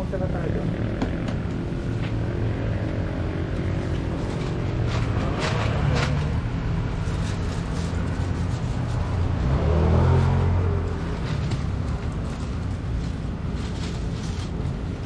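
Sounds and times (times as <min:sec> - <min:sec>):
vehicle engine humming: 0:00.0 - 0:15.0.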